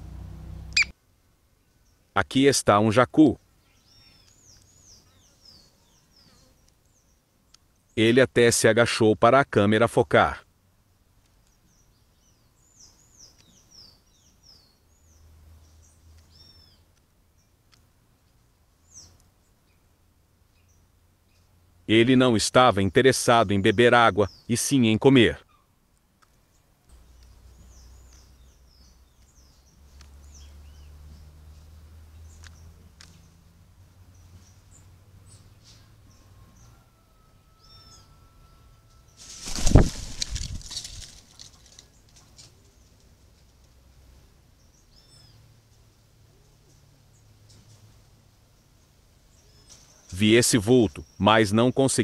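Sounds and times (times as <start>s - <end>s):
low steady hum: 0.0s - 2.2s
small bird chirping: 0.7s - 1.0s, 3.4s - 8.0s, 11.4s - 17.6s, 26.4s - 36.8s, 44.6s - 45.5s, 48.6s - 50.2s
arching bird call: 36.1s - 41.0s.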